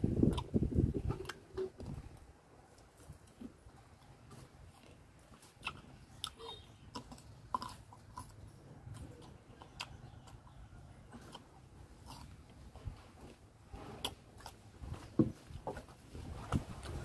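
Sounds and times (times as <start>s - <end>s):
person crunching raw fruit: 0.1s - 15.3s.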